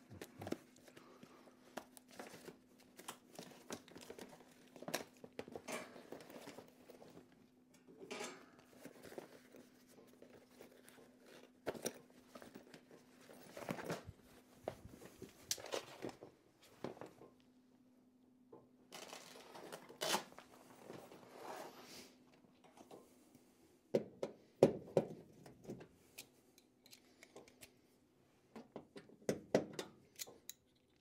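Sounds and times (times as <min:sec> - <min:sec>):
rustling of soft tool bag: 0:20.4 - 0:22.2
tools clicking and knocking: 0:24.9 - 0:27.7, 0:28.6 - 0:31.0.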